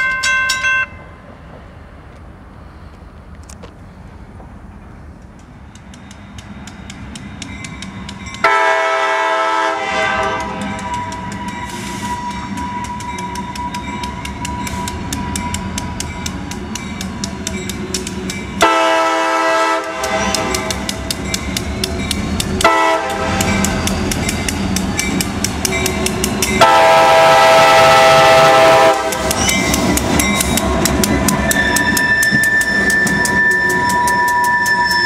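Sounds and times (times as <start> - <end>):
crossing bell ringing: 0.0 - 1.2, 5.8 - 35.0
diesel locomotive rumble: 1.0 - 35.0
locomotive air horn blast: 8.4 - 12.3, 18.6 - 20.8, 22.6 - 23.8, 26.6 - 29.3.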